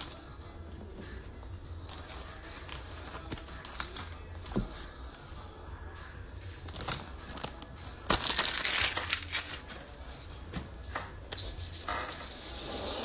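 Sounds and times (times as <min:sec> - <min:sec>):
packaging crinkling and rustling: 0:01.8 - 0:04.7, 0:06.6 - 0:09.9.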